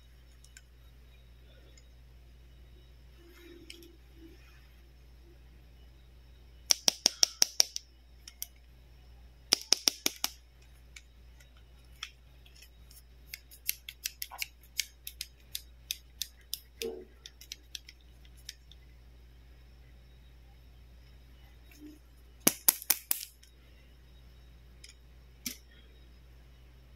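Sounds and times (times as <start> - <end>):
plastic toy scissors clacking: 13.3 - 18.6.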